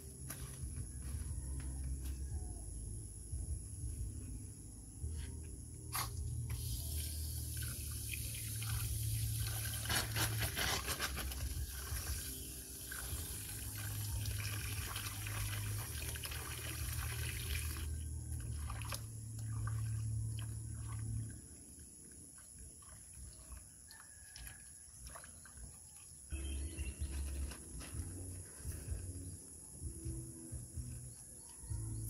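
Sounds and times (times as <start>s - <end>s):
hose water filling metal pot: 6.5s - 21.2s.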